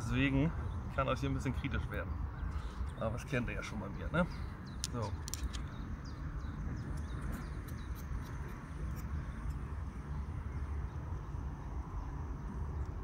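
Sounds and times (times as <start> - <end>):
low urban rumble: 0.0 - 13.0
faint light clicks of handled parts: 4.7 - 5.8.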